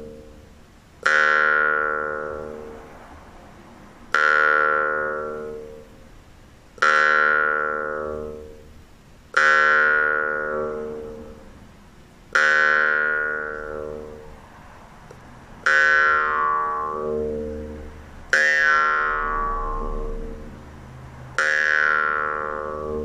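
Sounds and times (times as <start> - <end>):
jaw harp twangs: 15.6 - 20.6, 21.4 - 23.0.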